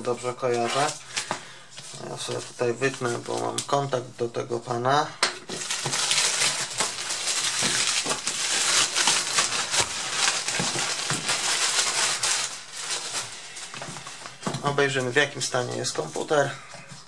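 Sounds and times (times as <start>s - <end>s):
plastic bag rustling and crinkling: 0.0s - 4.0s, 5.5s - 17.0s.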